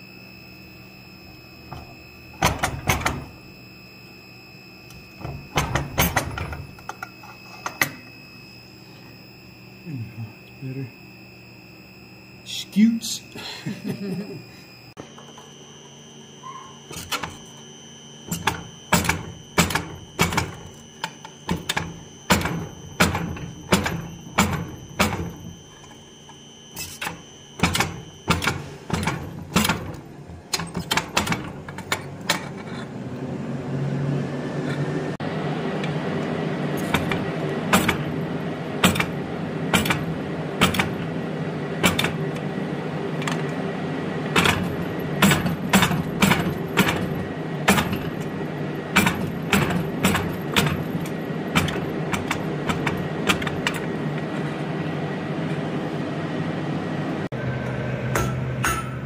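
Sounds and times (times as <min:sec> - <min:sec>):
hammer striking steel on anvil: 0:57.6 - 0:59.0.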